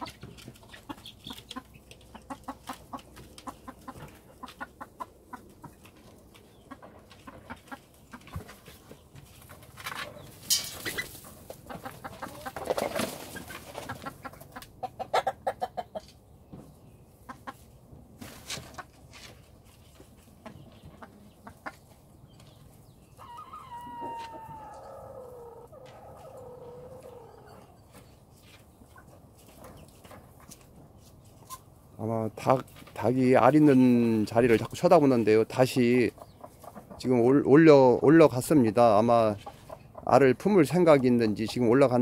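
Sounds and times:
chickens clucking: 0.0 - 42.0
rooster crowing: 23.2 - 27.6.

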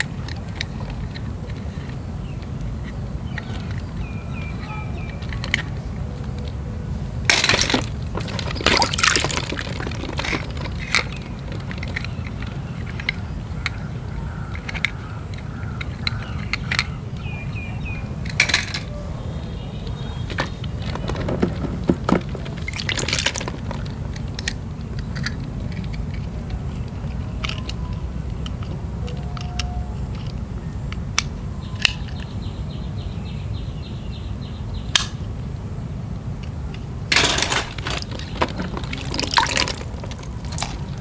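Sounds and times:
water splashing in a tub: 7.4 - 11.9, 22.5 - 23.9, 37.5 - 41.0
small plastic clicks: 20.3 - 32.3.

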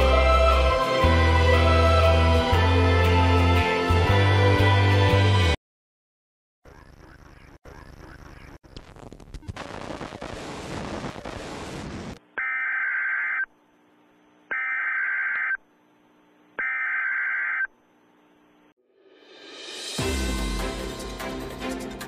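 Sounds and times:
tv static hiss: 8.7 - 12.2.

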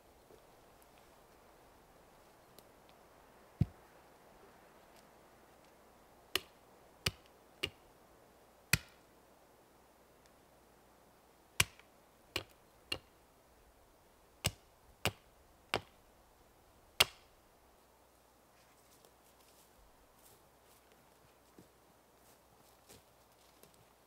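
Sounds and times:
axe chopping tree trunk: 8.7 - 9.0, 14.4 - 16.0, 17.0 - 17.3.

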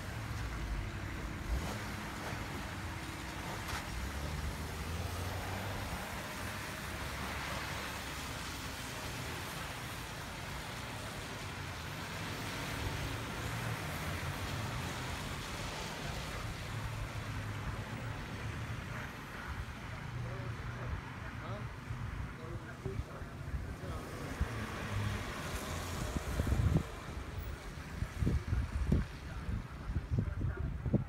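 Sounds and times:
tyres hissing on wet road: 0.0 - 29.8
wind rumble on microphone: 21.9 - 31.0.

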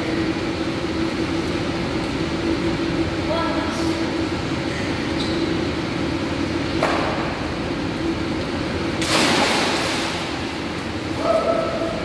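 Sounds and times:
steady low hum: 0.0 - 12.0
loud splash of water: 9.0 - 10.4.

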